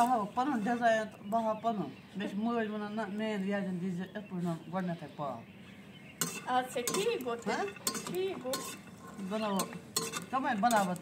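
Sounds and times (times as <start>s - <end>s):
metal clinking on metal: 6.2s - 11.0s
metal spoon scraping in a wok: 6.2s - 11.0s.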